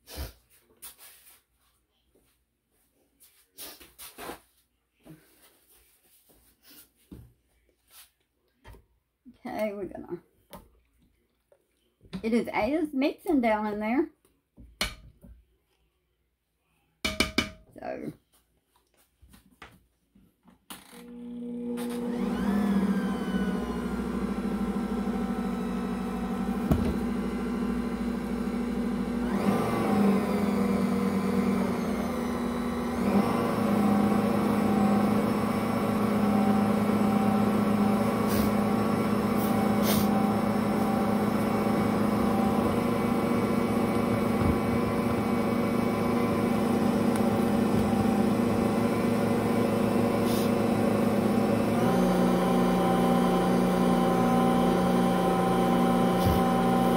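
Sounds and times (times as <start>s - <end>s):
stand mixer motor hum: 21.0s - 56.9s.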